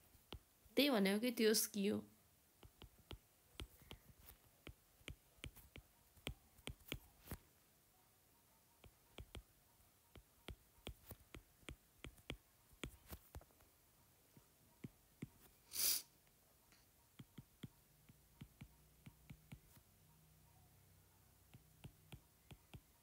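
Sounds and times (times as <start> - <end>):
stylus tapping on glass screen: 2.6 - 7.4, 8.8 - 9.5, 10.2 - 13.4, 17.2 - 19.8, 21.5 - 23.0
short breathy hiss: 15.6 - 16.2.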